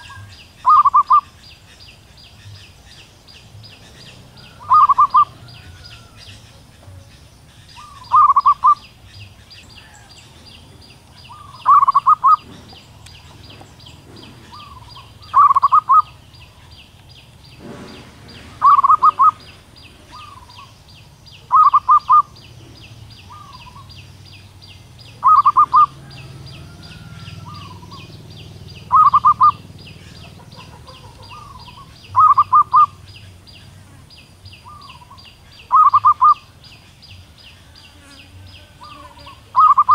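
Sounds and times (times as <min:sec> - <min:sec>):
dove cooing: 0:00.0 - 0:01.4, 0:03.7 - 0:16.7, 0:17.6 - 0:20.8, 0:21.4 - 0:24.0, 0:25.1 - 0:33.3, 0:34.6 - 0:36.5, 0:38.6 - 0:39.9
high-pitched chirring: 0:28.9 - 0:29.7.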